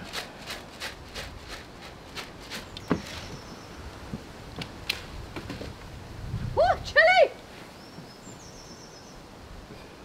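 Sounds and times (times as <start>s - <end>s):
footsteps on wet wooden decking: 0.0s - 5.9s, 7.5s - 8.9s.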